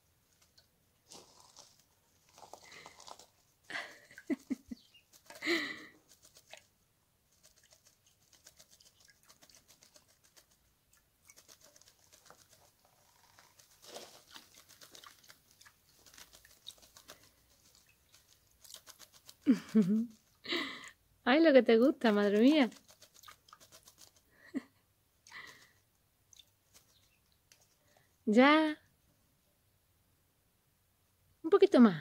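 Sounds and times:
wings fluttering: 0:00.3 - 0:20.4, 0:22.0 - 0:24.6, 0:25.3 - 0:27.8
bird splashing in water: 0:04.1 - 0:20.3, 0:22.0 - 0:24.3.

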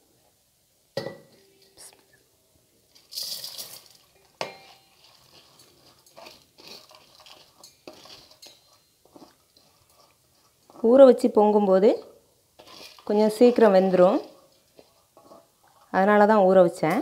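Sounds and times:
rice pouring: 0:02.9 - 0:11.0, 0:12.6 - 0:15.9
wet grains scraping on metal: 0:02.9 - 0:11.9, 0:12.6 - 0:16.2.

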